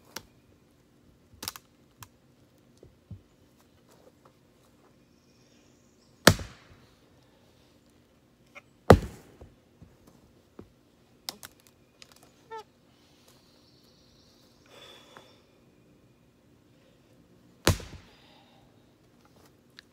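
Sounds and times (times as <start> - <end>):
axe chopping log: 6.3 - 6.7, 8.9 - 9.5, 17.6 - 18.1.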